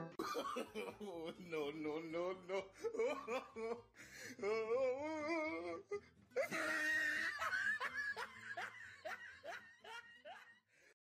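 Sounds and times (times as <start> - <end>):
person laughing: 4.4 - 10.5.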